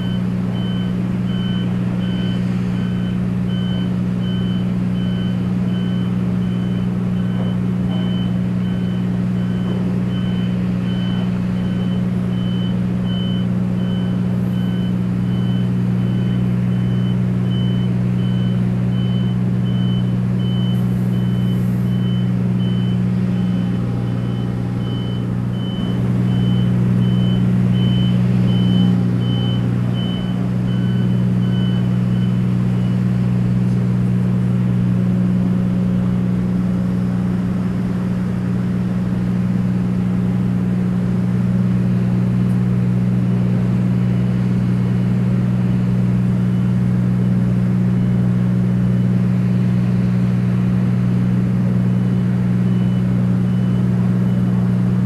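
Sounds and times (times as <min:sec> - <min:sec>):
high warning beep: 0:00.0 - 0:32.4
heavy machinery engine drone: 0:00.0 - 0:55.0.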